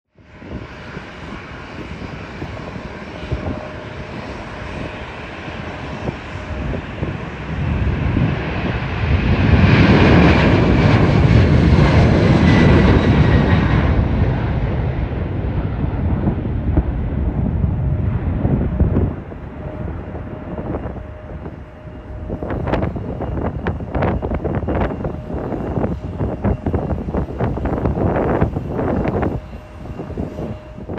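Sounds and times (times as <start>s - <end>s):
jet engines at takeoff: 0.1s - 30.9s
whining tone falling in pitch: 17.7s - 30.9s.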